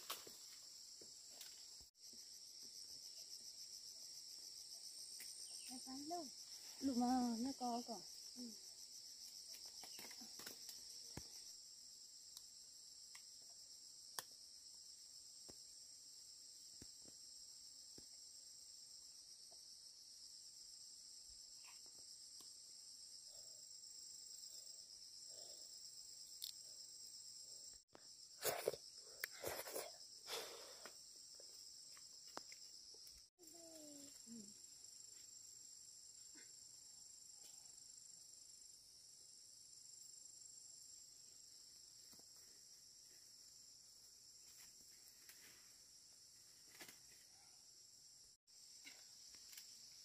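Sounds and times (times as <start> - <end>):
insects trilling: 0.0 - 38.8.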